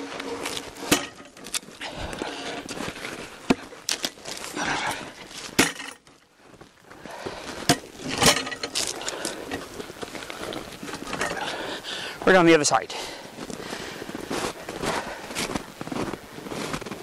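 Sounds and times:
rustle of handling gear: 0:00.0 - 0:12.4
footsteps crunching in snow: 0:00.0 - 0:17.0.

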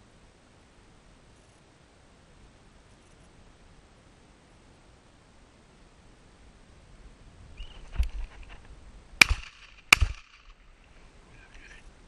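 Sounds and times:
shotgun shots: 0:09.2 - 0:10.7.

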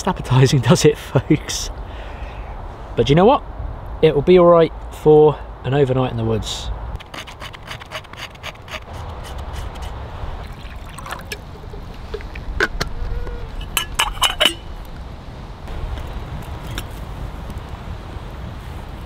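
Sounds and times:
water pouring into metal pot: 0:10.4 - 0:11.4.

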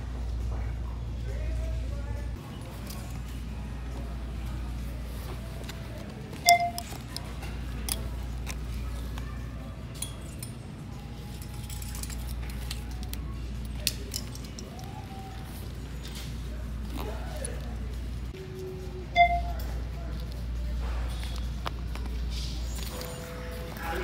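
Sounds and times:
metal hardware clinking: 0:11.2 - 0:14.9.

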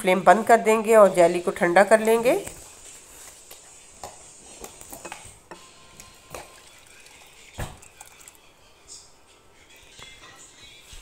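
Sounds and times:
liquid pouring into glass bowl: 0:06.0 - 0:08.4.

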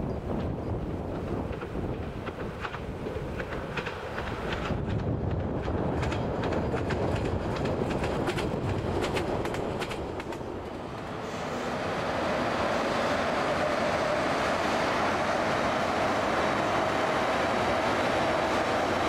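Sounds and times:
diesel train passing: 0:00.0 - 0:19.0
train wheels clacking over rail joints: 0:00.3 - 0:11.1.

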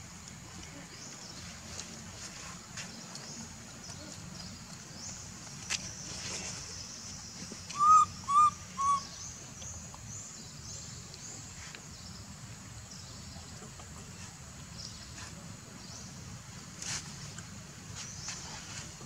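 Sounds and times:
baby monkey coo calls: 0:07.7 - 0:09.1.

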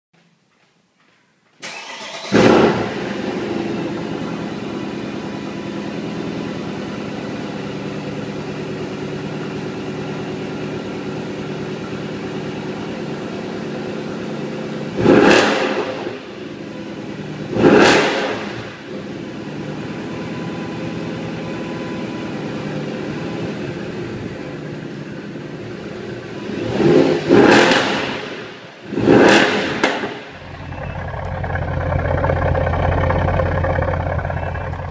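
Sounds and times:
car engine starting and idling: 0:01.6 - 0:34.9
engine revving: 0:01.7 - 0:03.9, 0:14.9 - 0:16.4, 0:17.4 - 0:19.4, 0:26.3 - 0:34.9.

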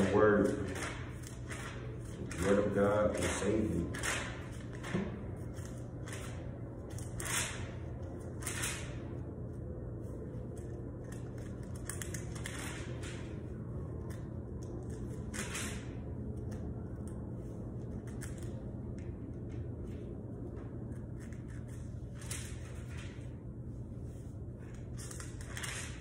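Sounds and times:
steady low hum: 0:00.0 - 0:26.0
pages being turned: 0:24.0 - 0:26.0.

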